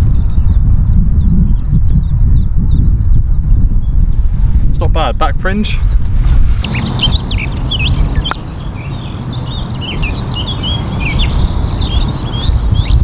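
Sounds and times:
small birds chirping and singing: 0:00.0 - 0:13.0
wind rumble on microphone: 0:00.0 - 0:13.0.

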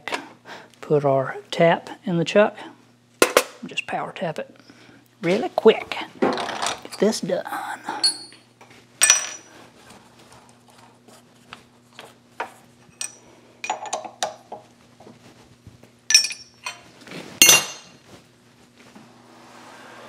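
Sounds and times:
metal tooling clinking: 0:12.9 - 0:14.3, 0:16.1 - 0:16.8, 0:17.4 - 0:17.9.

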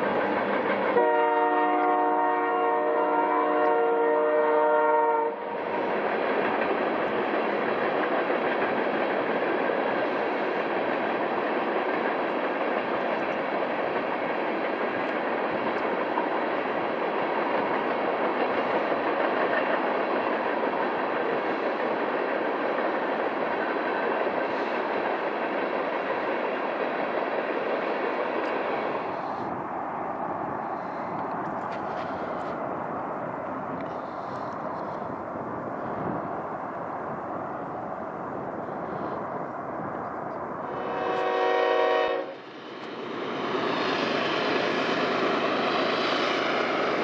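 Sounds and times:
freight train cars rolling past: 0:00.0 - 0:47.0
locomotive air horn chord: 0:00.9 - 0:05.6, 0:40.8 - 0:42.4.

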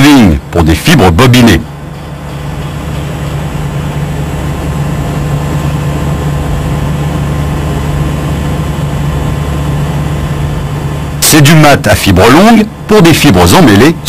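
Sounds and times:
low droning hum: 0:00.0 - 0:14.0.

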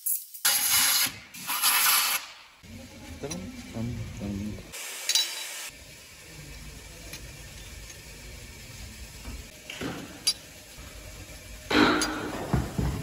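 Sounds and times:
low workshop hum: 0:00.0 - 0:13.0
metal parts clinking: 0:05.1 - 0:05.6, 0:10.2 - 0:10.5.

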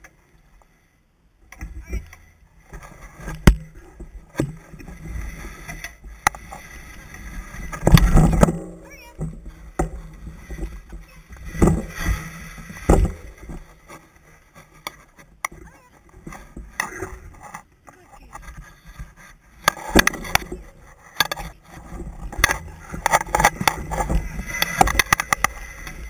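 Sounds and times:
wheels rolling over dirt trail: 0:01.3 - 0:26.0
clicks and rattles from bumps: 0:07.6 - 0:26.0.

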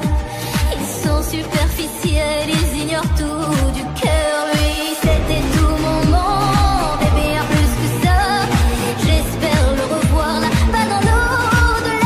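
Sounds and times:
woman singing: 0:00.0 - 0:12.0
steady kick-drum beat: 0:04.9 - 0:09.5.

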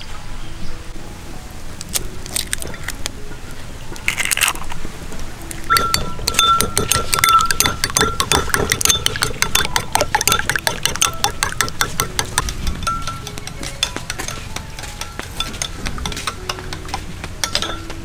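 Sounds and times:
spoon clinking against glass bowl: 0:05.7 - 0:18.0.

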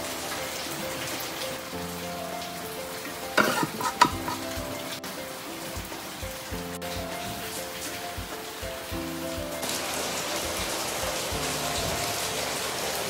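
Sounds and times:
soft background music: 0:00.0 - 0:13.0
metal spatula scraping a wok: 0:03.4 - 0:04.5.

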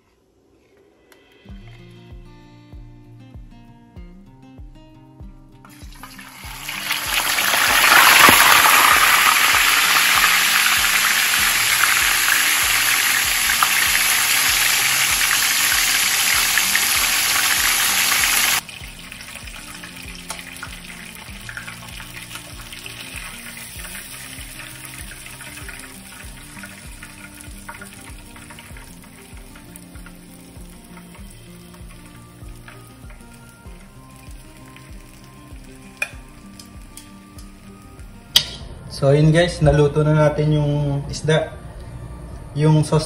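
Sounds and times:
fish frying in oil: 0:05.7 - 0:37.8.

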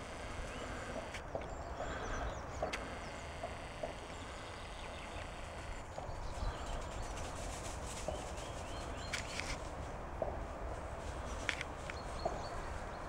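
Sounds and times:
light clicks: 0:00.1 - 0:08.4, 0:11.3 - 0:12.6.

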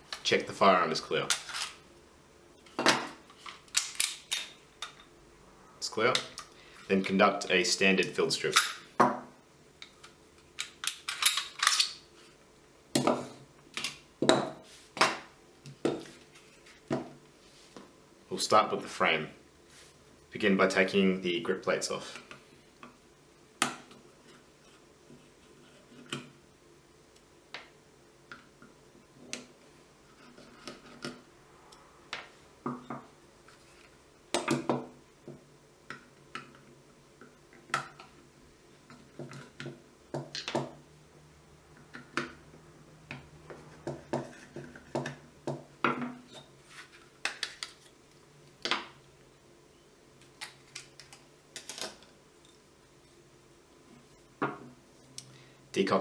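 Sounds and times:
metal parts clicking and clinking: 0:10.6 - 0:11.9.

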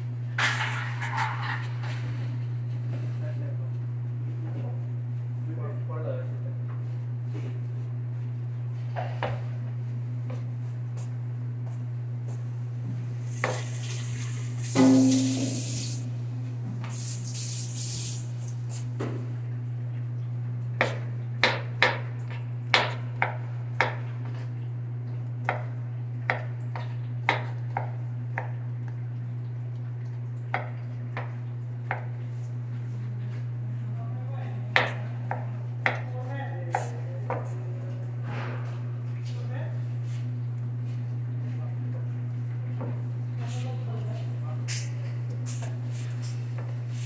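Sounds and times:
steady low hum: 0:00.0 - 0:47.0
knife chopping on cutting board: 0:20.8 - 0:22.0, 0:26.3 - 0:28.5, 0:30.5 - 0:32.1, 0:34.7 - 0:36.1, 0:36.7 - 0:37.5.

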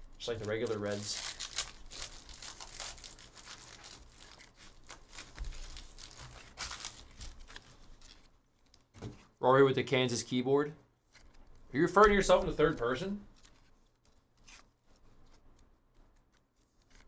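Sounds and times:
wrapper crinkling: 0:00.1 - 0:08.9, 0:12.2 - 0:15.4
foil pack tearing: 0:00.3 - 0:08.1.

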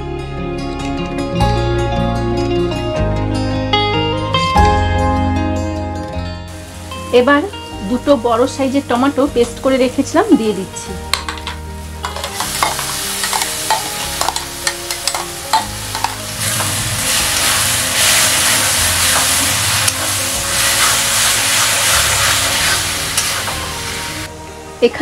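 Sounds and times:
food sizzling in oil: 0:06.5 - 0:25.0
spatula scraping and tapping pan: 0:11.1 - 0:16.8, 0:19.0 - 0:20.2.

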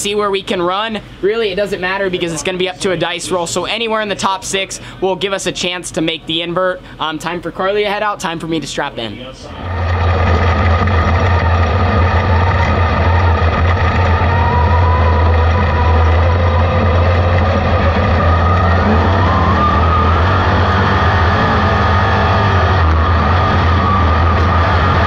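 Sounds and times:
race car engine running: 0:09.5 - 0:25.0.

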